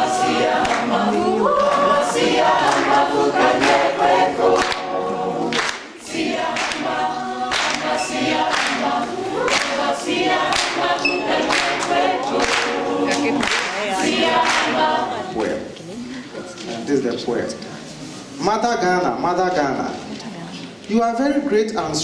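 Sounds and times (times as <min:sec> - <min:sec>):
women singing a cappella: 0:00.0 - 0:16.8.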